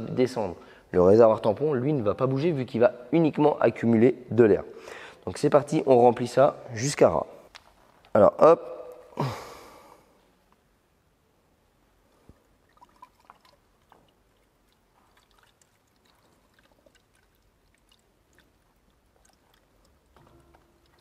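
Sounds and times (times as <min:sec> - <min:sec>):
liquid trickling and gurgling: 0:12.2 - 0:21.0.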